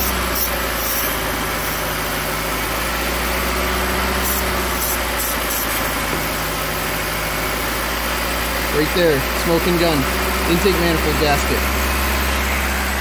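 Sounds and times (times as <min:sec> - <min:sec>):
aerosol spray hissing: 0:00.0 - 0:01.9, 0:04.2 - 0:05.8
car engine idling: 0:00.0 - 0:13.0.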